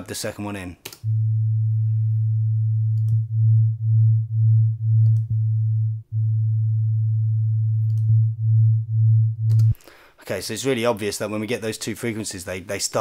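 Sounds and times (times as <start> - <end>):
second sine tone beating: 1.0 - 9.8
steady sine tone: 1.0 - 9.8
faint click: 9.5 - 9.8.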